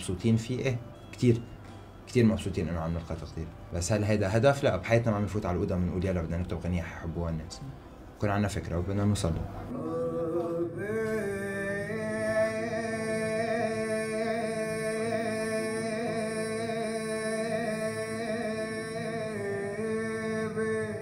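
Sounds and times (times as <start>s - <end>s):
music of long held notes: 9.7s - 21.0s.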